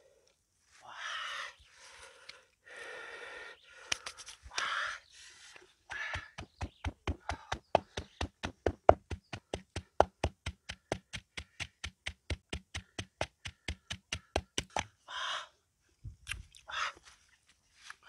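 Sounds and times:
pestle pounding in mortar: 6.0s - 14.8s.

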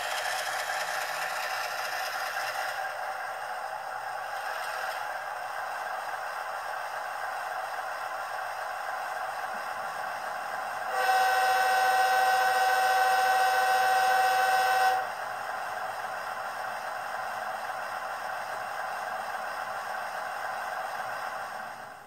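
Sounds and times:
locomotive horn blast: 10.9s - 15.1s.

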